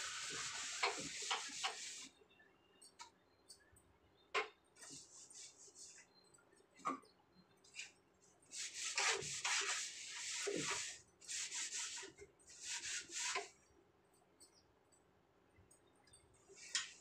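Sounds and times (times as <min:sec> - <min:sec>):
scrubbing a shelf by hand: 0:00.0 - 0:02.1, 0:04.8 - 0:06.0, 0:08.5 - 0:13.6.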